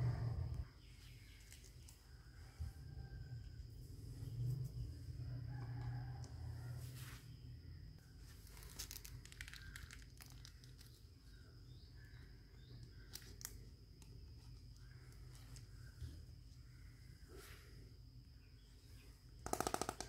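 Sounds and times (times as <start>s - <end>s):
faint steady hum: 0.0s - 20.0s
plastic wrapping crinkling: 8.3s - 11.0s.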